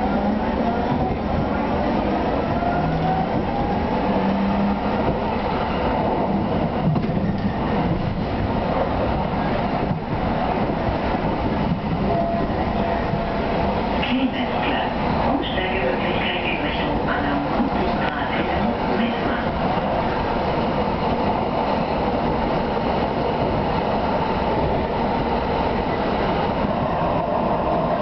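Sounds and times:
rumble of wheels on rail: 0:00.0 - 0:28.0.

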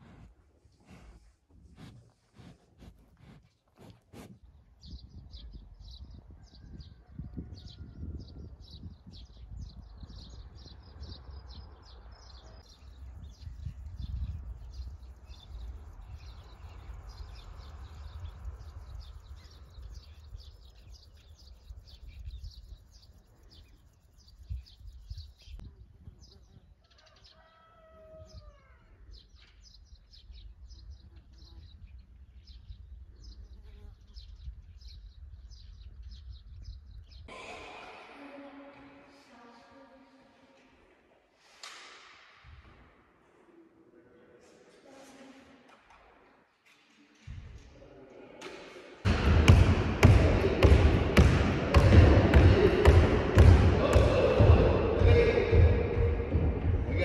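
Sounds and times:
small birds chirping: 0:00.0 - 0:37.3
steady low rumble: 0:49.1 - 0:57.0.

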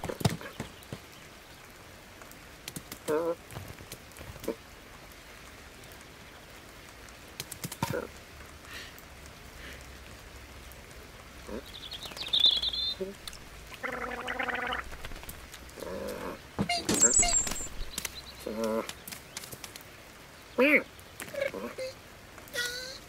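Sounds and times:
steady rain falling: 0:00.0 - 0:23.0
small bird chirping: 0:11.6 - 0:19.6.

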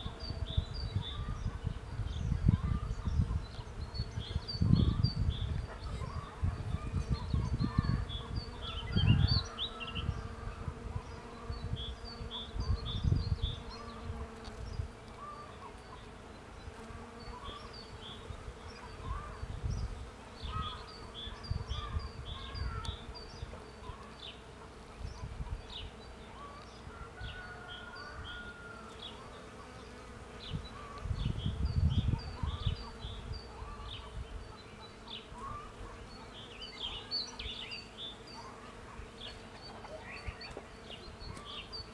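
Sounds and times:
wind rumble on microphone: 0:00.0 - 0:15.0, 0:18.2 - 0:23.5, 0:25.0 - 0:25.9, 0:30.4 - 0:34.5
bees buzzing: 0:00.0 - 0:41.9.

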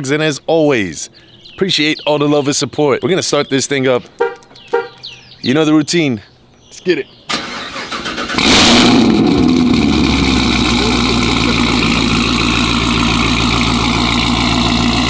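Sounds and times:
car engine starting and idling: 0:07.3 - 0:15.0.

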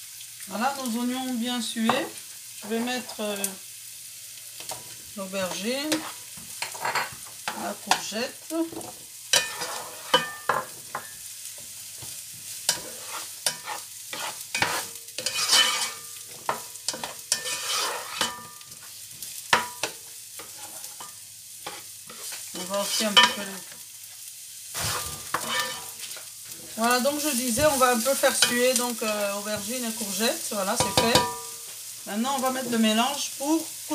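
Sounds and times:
vegetables sizzling in oil: 0:00.0 - 0:33.9
spatula scraping a pan: 0:04.6 - 0:08.1, 0:08.7 - 0:31.8.

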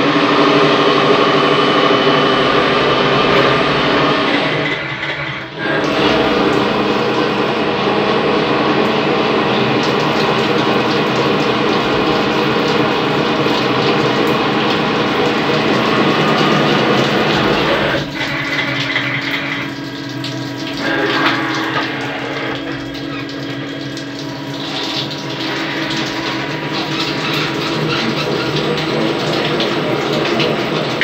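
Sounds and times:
coolant splashing on metal: 0:00.0 - 0:31.0
lathe machine running: 0:00.0 - 0:31.0.

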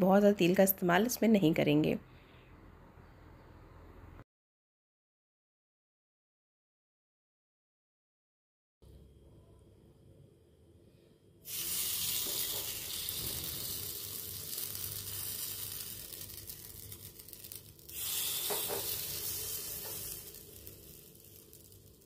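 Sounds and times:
batter sizzling in a hot pan: 0:11.4 - 0:22.0.

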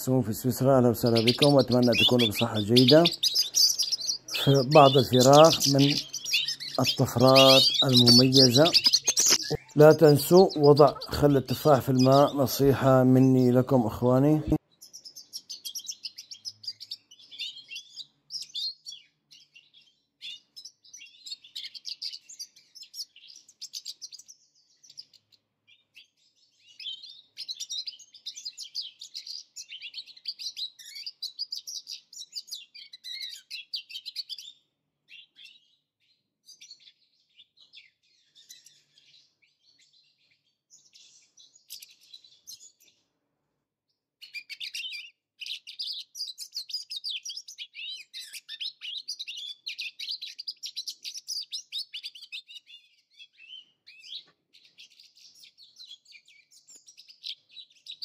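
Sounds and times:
finches twittering: 0:00.0 - 0:25.3.

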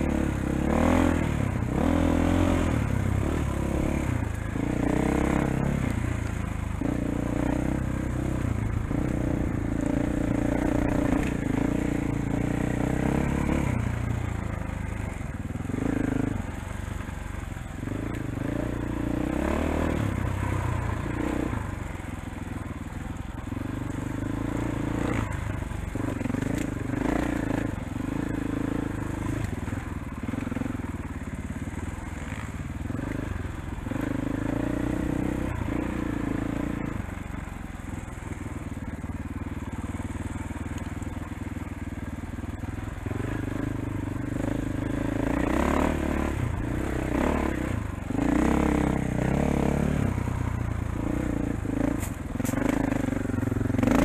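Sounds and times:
dirt bike engine revving: 0:00.0 - 0:17.0, 0:17.7 - 0:22.2, 0:23.4 - 0:37.1, 0:42.8 - 0:54.0.

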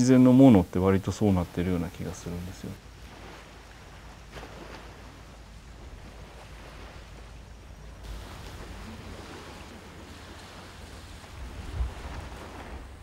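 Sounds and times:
sea waves washing on beach: 0:00.0 - 0:13.0
wind rumbling on microphone: 0:02.8 - 0:13.0.

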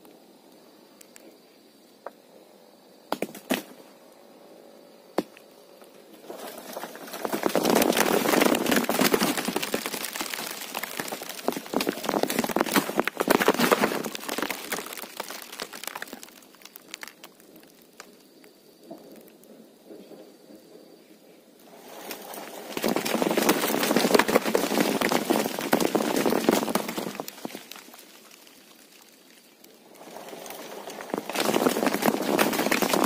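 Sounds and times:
leaves and twigs rustling: 0:05.6 - 0:19.6, 0:21.6 - 0:33.0
twigs snapping: 0:06.3 - 0:18.3, 0:22.0 - 0:33.0.

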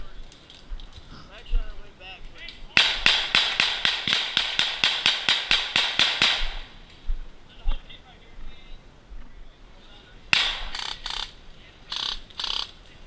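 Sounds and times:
airsoft rifle shots: 0:02.7 - 0:06.9, 0:10.3 - 0:12.7.

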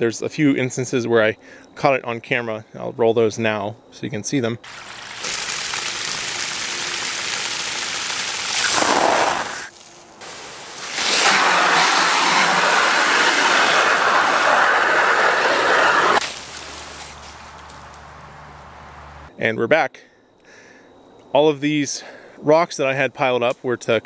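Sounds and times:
water jet rushing and splashing: 0:04.7 - 0:16.2.

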